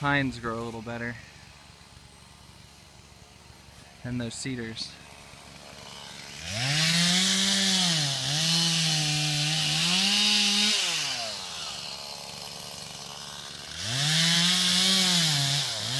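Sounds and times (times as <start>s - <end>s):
chainsaw revving and cutting brush: 0.0s - 15.9s.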